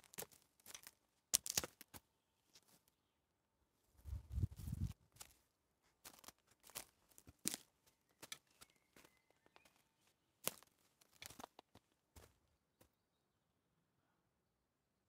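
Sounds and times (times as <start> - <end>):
footsteps on dry forest floor: 4.1 - 12.4.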